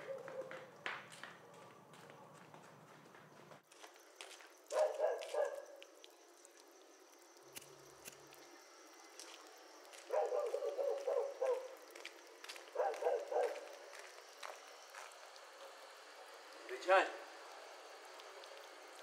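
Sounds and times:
dog barking: 0.0s - 0.7s, 4.7s - 5.8s, 10.1s - 11.8s, 12.7s - 13.7s.

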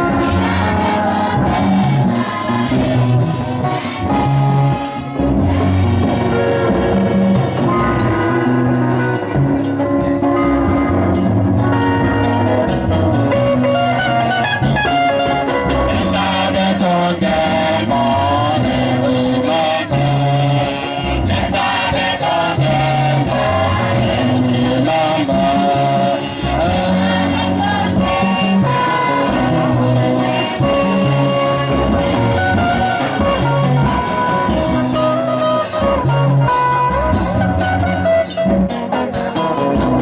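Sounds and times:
choir singing a hymn: 0.0s - 10.2s, 15.6s - 35.9s
band accompaniment: 0.0s - 40.0s.

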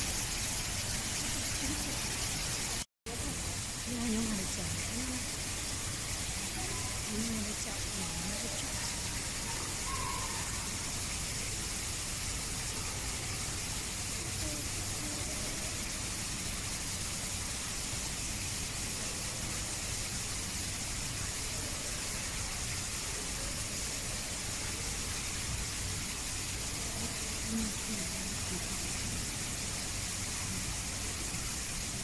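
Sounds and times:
steady background hiss: 0.0s - 32.0s
faint distant voices: 6.0s - 10.9s.

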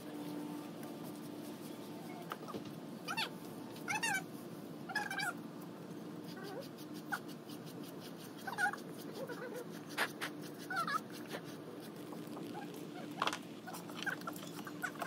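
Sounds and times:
steady low hum: 0.0s - 15.0s
dog whimpering: 3.9s - 4.2s, 4.9s - 5.4s, 6.2s - 15.0s.

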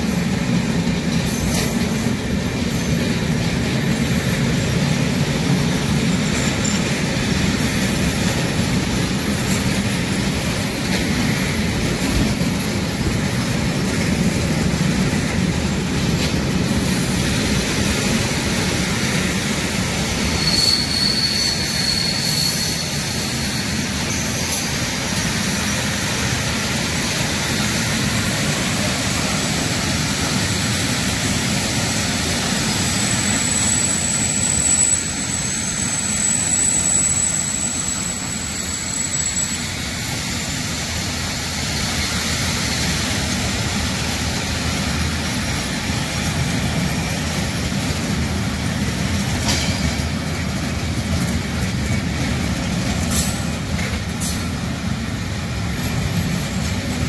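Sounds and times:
train wheels rumbling on rails: 0.0s - 57.0s
high wheel squeal: 1.2s - 11.2s, 16.7s - 42.9s.

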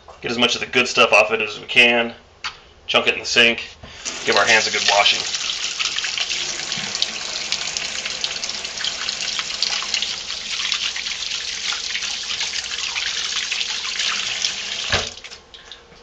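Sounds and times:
faucet running into steel sink: 4.0s - 15.4s.

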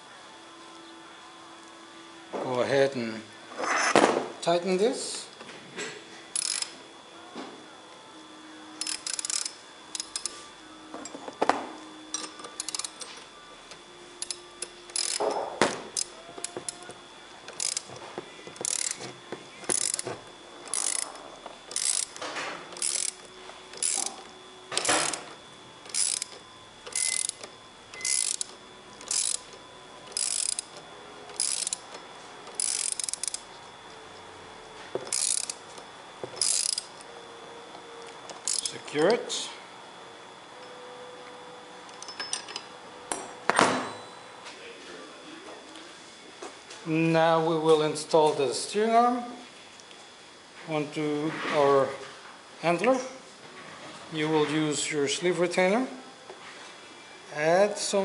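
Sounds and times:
ratchet wrench clicking: 6.3s - 6.8s, 8.8s - 10.4s, 12.1s - 13.1s, 14.2s - 16.9s, 17.5s - 18.0s, 18.6s - 33.5s, 35.0s - 35.8s, 36.4s - 37.1s, 38.3s - 38.9s.

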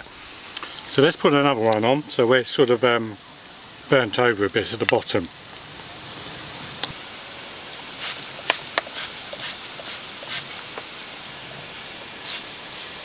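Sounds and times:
spray bottle hissing sprays: 8.0s - 10.9s, 12.2s - 13.0s.

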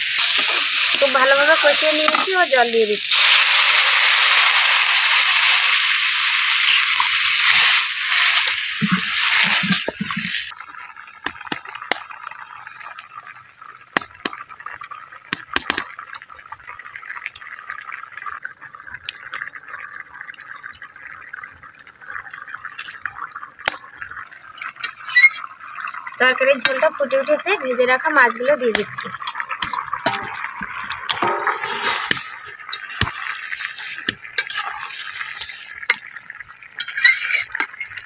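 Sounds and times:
water hissing in hot pan: 0.0s - 10.6s, 22.0s - 38.0s
curry simmering and bubbling: 0.0s - 38.0s
sharp pops: 11.2s - 12.0s, 13.9s - 14.4s, 15.3s - 15.9s.

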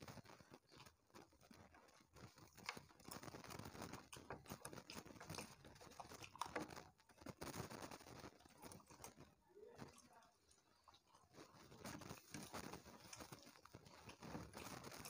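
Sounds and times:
chewing: 0.0s - 15.0s
fingers mixing food on plates: 0.0s - 15.0s.

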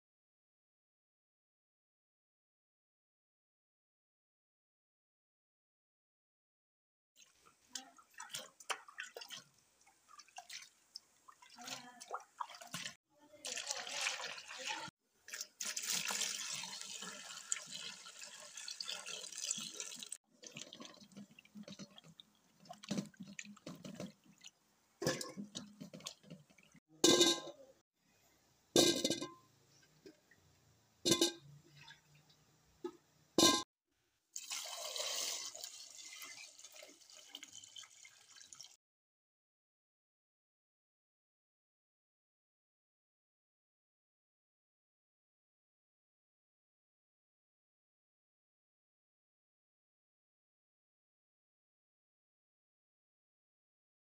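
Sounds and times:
water sloshing in pot: 7.2s - 27.6s, 34.4s - 38.8s
tap water pouring into pot: 12.4s - 24.4s, 34.4s - 38.8s.

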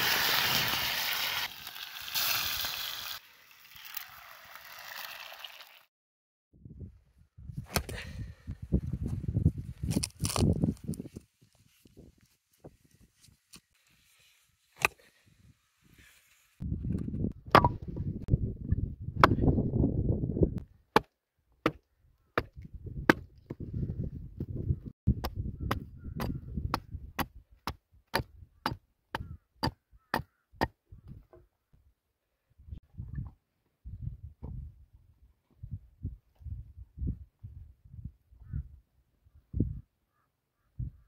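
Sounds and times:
hatchet chopping wood: 17.5s - 17.8s, 19.2s - 19.4s, 20.9s - 21.8s, 23.1s - 23.3s.

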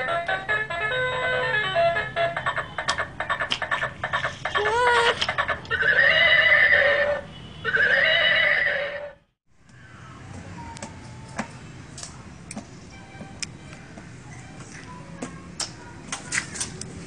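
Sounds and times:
toy horse neighing: 4.5s - 9.2s.

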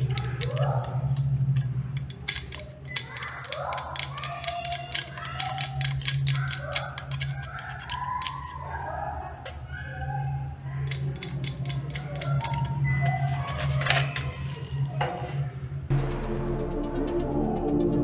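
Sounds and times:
screwdriver scraping metal contact: 0.0s - 8.6s, 10.9s - 15.4s.

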